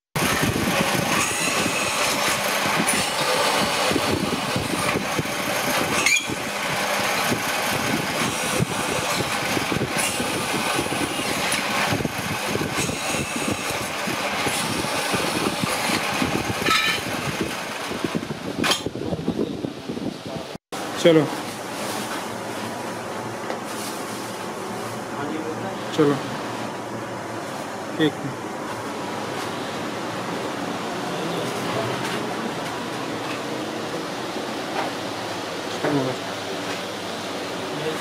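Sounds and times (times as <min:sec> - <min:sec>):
drill bit cutting metal: 0:00.2 - 0:17.2
drill press motor drone: 0:00.2 - 0:18.2.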